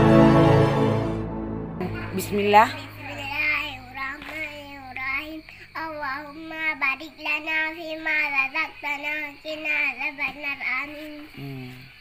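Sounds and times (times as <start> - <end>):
girl singing: 2.9 - 11.6.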